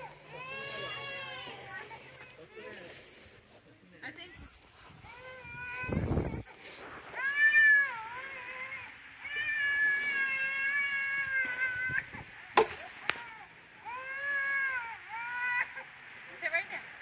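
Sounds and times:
young child whining cries: 0:00.0 - 0:02.7, 0:05.0 - 0:12.2, 0:13.0 - 0:15.9.

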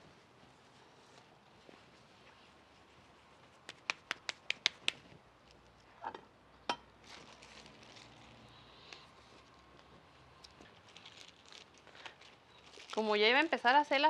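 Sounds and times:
hands patting dough: 0:03.0 - 0:05.2.

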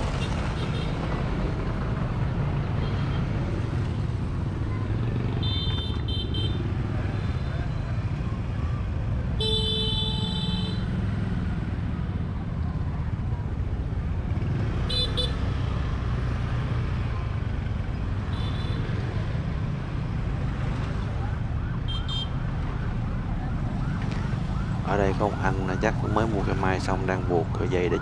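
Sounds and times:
street traffic: 0:00.0 - 0:28.0
car horn beeps: 0:09.4 - 0:10.8.

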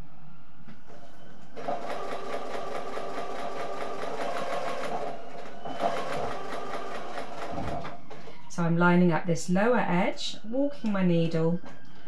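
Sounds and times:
sewing machine stitching: 0:01.6 - 0:08.0.

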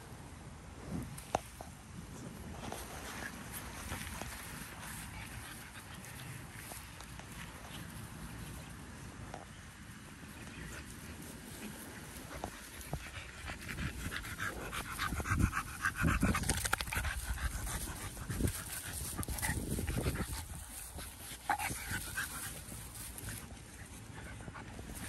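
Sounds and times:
dog panting: 0:10.4 - 0:25.0.

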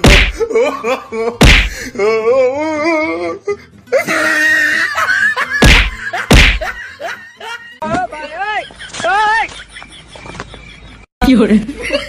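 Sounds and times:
comedy slap effects: 0:00.0 - 0:00.5, 0:01.4 - 0:01.8, 0:05.6 - 0:06.8.

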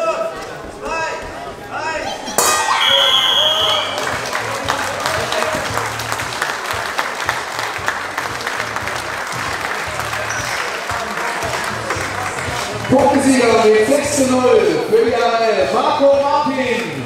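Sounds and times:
crowd applauding: 0:02.8 - 0:14.4.

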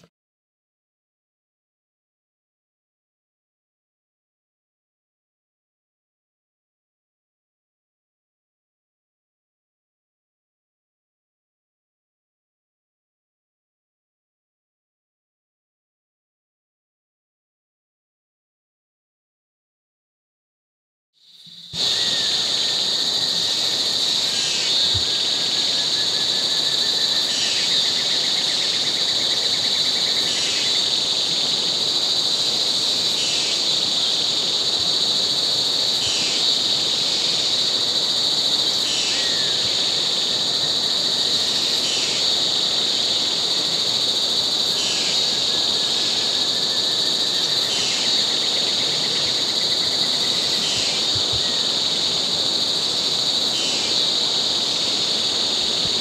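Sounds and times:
insect droning buzz: 0:21.2 - 0:56.0
short descending insect calls: 0:21.2 - 0:56.0.

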